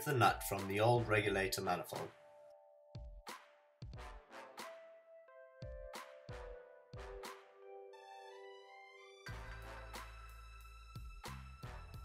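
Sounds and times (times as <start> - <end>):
light electronic drum beat: 3.0 - 4.2.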